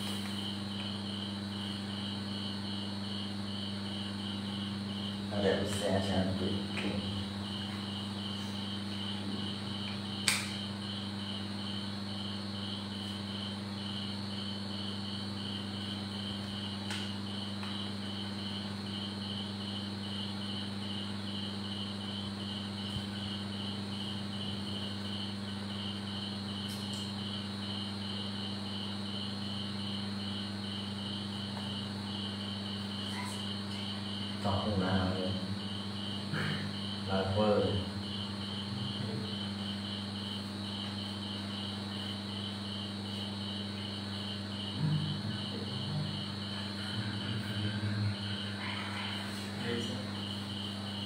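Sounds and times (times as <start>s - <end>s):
insect chirping: 0.0s - 51.0s
low steady hum: 0.0s - 51.0s
sharp click: 10.2s - 10.6s.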